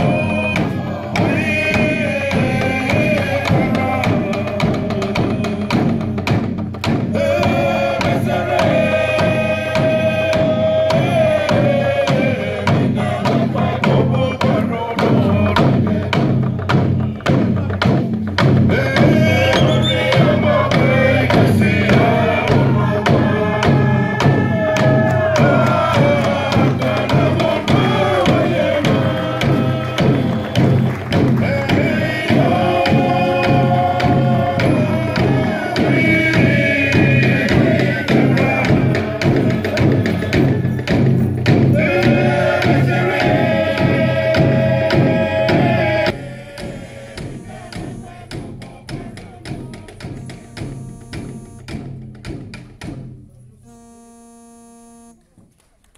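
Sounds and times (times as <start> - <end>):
group singing chant-like song: 0.0 - 51.5
wooden hand drums beating: 0.0 - 53.3.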